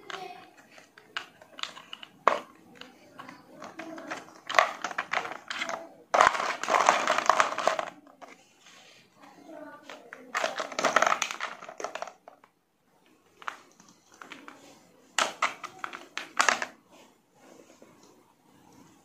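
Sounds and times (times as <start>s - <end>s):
plastic toys clattering in tub: 0.0s - 8.4s, 9.9s - 12.5s, 15.2s - 16.8s.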